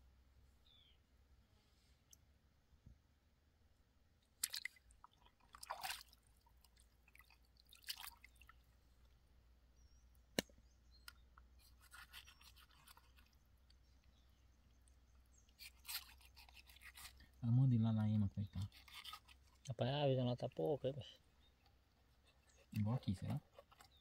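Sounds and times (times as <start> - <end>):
knife scraping fish: 11.6 - 13.3, 15.6 - 17.3, 18.6 - 19.6.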